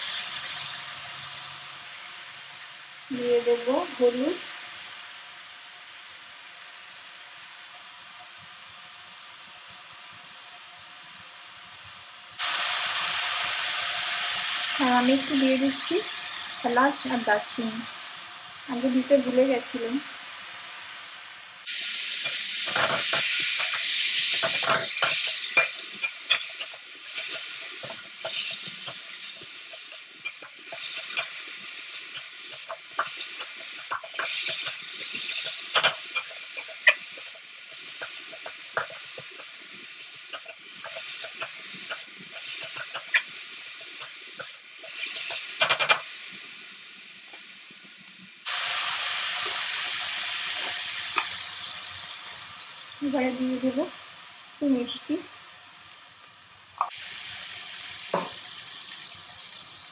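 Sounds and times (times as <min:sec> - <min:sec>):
oil sizzling: 0:00.0 - 0:59.9
metal spatula scraping a pan: 0:22.2 - 0:31.4, 0:32.0 - 0:39.5, 0:40.3 - 0:46.0.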